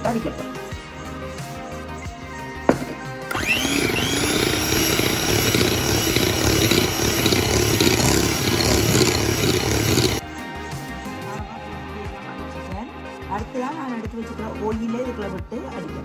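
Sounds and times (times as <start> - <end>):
electric hand mixer motor whine: 2.8 - 10.2.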